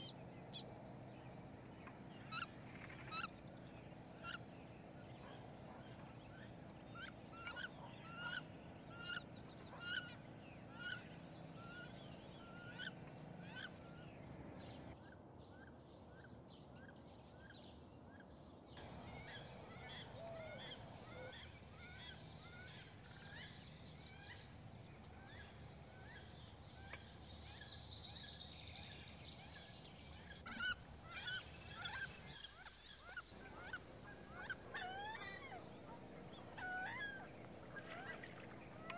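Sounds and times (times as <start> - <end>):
ducks calling: 0.0 - 0.7, 7.0 - 14.2, 18.8 - 38.9.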